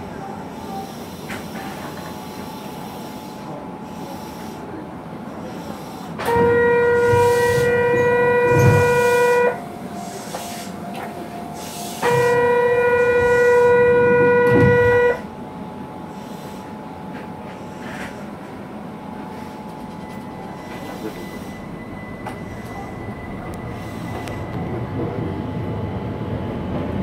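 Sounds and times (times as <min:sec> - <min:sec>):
low hum of standing train: 0:00.0 - 0:27.0
loud pitched signal tone: 0:06.3 - 0:15.3.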